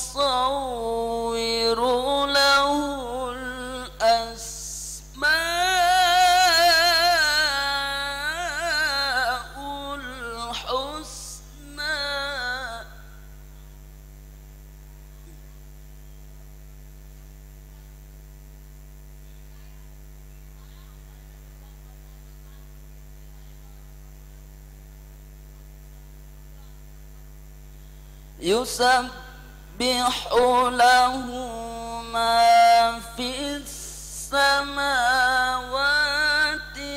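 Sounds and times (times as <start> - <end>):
person reciting melodically: 0.0 - 13.2, 28.4 - 36.9
electrical mains hum: 0.0 - 36.9.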